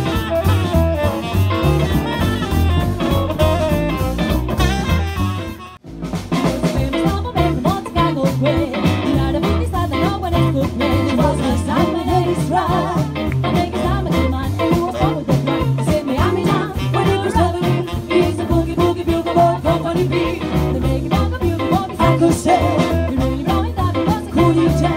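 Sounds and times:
drum kit beat: 0.0s - 24.9s
upright double bass: 0.0s - 24.9s
women singing together: 6.8s - 24.9s.

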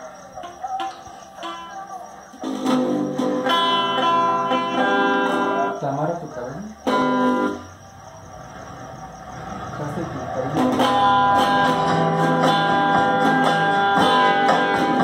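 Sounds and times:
electric guitar strumming chords: 2.4s - 6.1s, 6.8s - 7.6s, 10.5s - 15.0s.

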